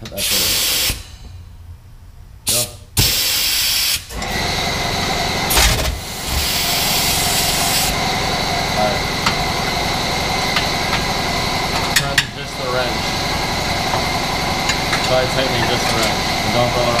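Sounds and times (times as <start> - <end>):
air ratchet hissing and rattling: 0.2 - 1.3, 2.5 - 4.1, 5.5 - 7.9.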